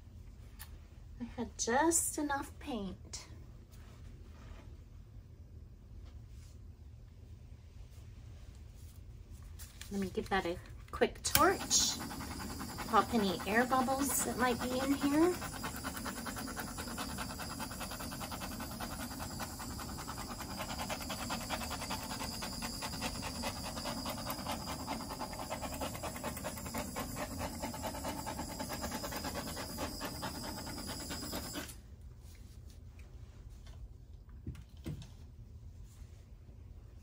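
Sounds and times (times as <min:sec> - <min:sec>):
torch flame hissing: 0:11.3 - 0:31.8.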